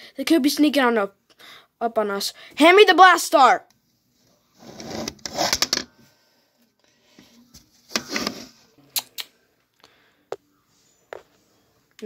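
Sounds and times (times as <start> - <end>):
toys rustling and scraping: 7.4 - 8.7.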